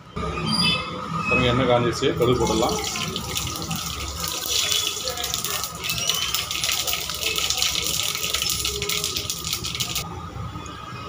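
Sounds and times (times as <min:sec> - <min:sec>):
oil sizzling: 0:02.2 - 0:10.0
seeds popping in hot oil: 0:02.2 - 0:10.0.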